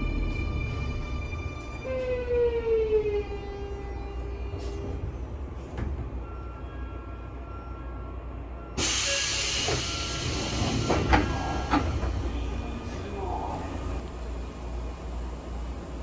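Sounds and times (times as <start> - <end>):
low hum of stopped train: 0.0 - 16.0
train doors hissing compressed air: 8.8 - 12.2.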